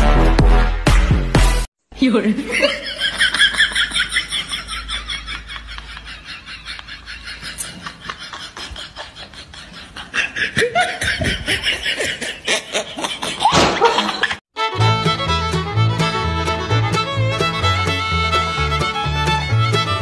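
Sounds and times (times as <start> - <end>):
person laughing in breathy snickers: 5.1 - 14.4.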